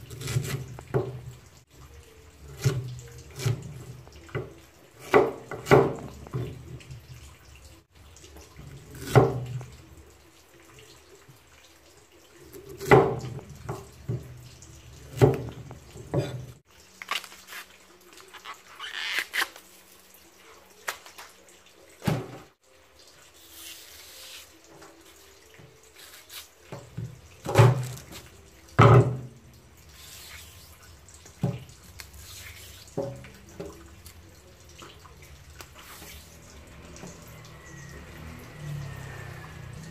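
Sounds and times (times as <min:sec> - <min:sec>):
stalks rustling and tearing: 0:16.9 - 0:19.8, 0:25.9 - 0:26.6.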